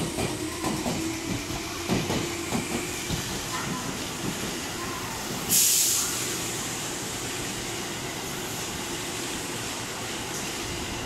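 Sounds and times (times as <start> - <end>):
electric train passing: 0.0 - 11.0
air hiss: 5.4 - 7.4.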